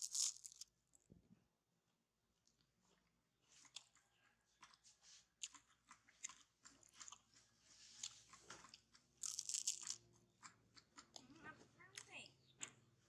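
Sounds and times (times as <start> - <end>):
monkey chewing and lip smacking: 3.5 - 9.2, 10.0 - 12.8.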